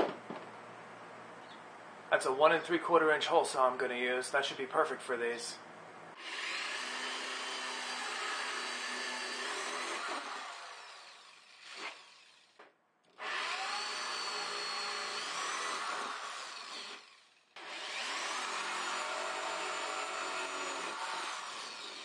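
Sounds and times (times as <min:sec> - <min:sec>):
electric drill cutting plastic: 0:06.2 - 0:22.0.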